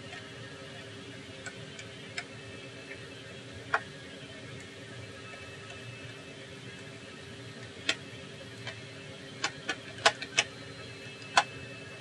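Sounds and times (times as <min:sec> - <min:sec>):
faint steady hum: 0:00.0 - 0:12.0
screwdriver clicking on laptop: 0:11.2 - 0:11.5.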